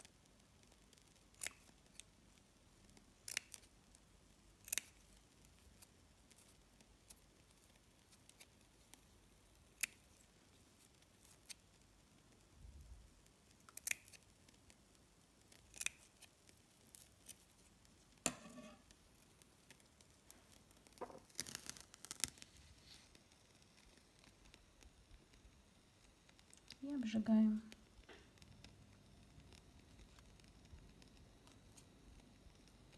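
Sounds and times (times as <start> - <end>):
small scissors snipping: 1.3 - 2.0, 4.6 - 5.0, 13.7 - 14.2.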